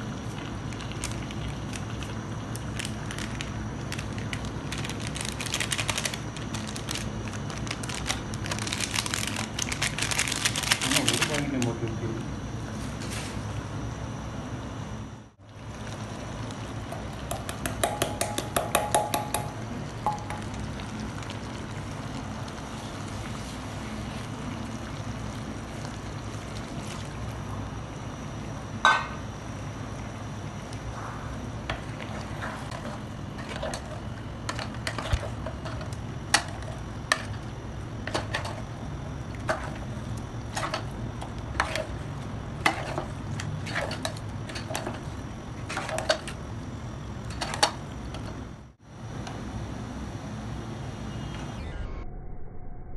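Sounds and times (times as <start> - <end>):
ladle stirring and scraping pot: 31.7 - 37.4, 39.3 - 39.9, 40.5 - 46.4.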